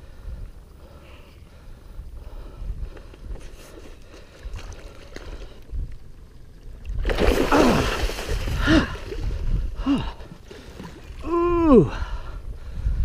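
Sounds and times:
fish splashing in water: 0:07.0 - 0:09.2
man grunting: 0:11.2 - 0:12.0.

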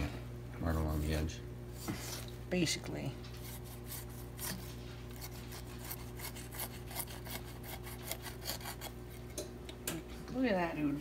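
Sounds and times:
knife scraping fish bones: 0:03.4 - 0:09.3.

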